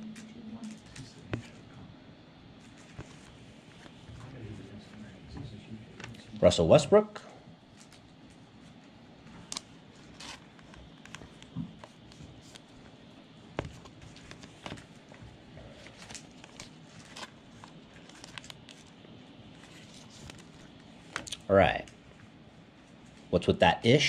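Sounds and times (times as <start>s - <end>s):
trading cards clicking and crinkling: 2.6s - 4.0s, 7.7s - 22.0s.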